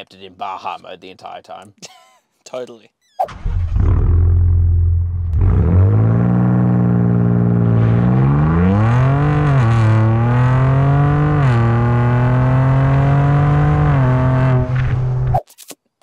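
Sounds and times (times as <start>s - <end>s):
engine accelerating through gears: 3.3s - 15.3s.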